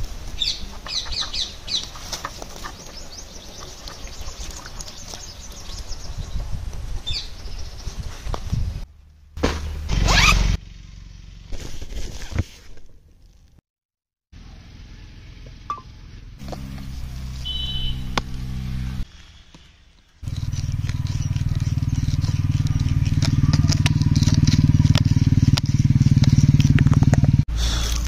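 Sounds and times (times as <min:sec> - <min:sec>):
rustling and scraping: 0:01.8 - 0:05.5, 0:11.5 - 0:13.6
zipper pulled open: 0:10.0 - 0:10.4
loud low buzzing: 0:15.7 - 0:19.1.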